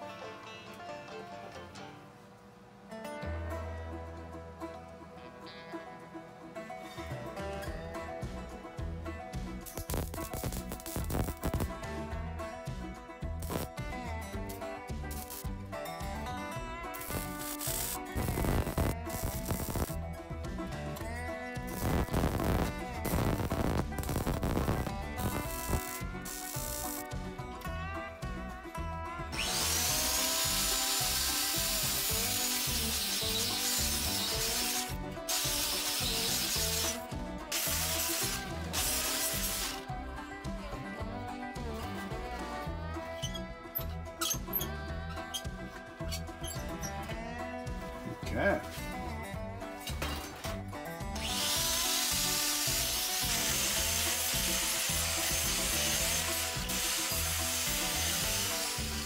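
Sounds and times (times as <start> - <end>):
background music with a beat: 7.0 - 59.0
angle grinder cutting steel: 9.6 - 11.7, 13.4 - 13.7, 15.1 - 15.5, 16.9 - 20.0, 21.6 - 27.2, 29.3 - 39.9, 51.2 - 59.0.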